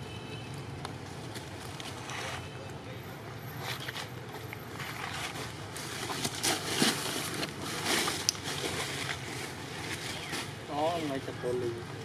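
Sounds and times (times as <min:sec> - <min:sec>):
steady outdoor hiss: 0:00.0 - 0:12.0
rustles and clicks: 0:03.5 - 0:10.8.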